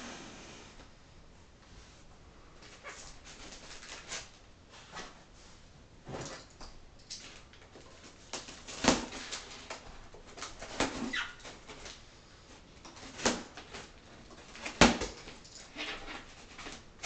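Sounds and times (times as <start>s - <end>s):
foam squeaking and scraping: 10.8s - 11.6s.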